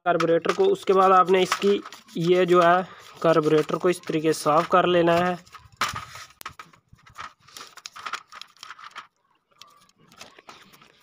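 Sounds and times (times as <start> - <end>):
toothbrush scrubbing metal: 0.4 - 4.8.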